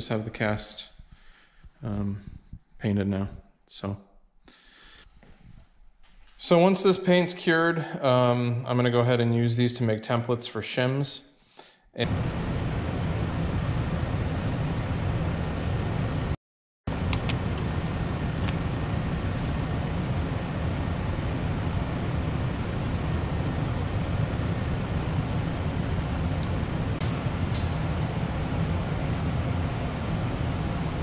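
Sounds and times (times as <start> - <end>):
steady low rumble: 12.0 - 31.0.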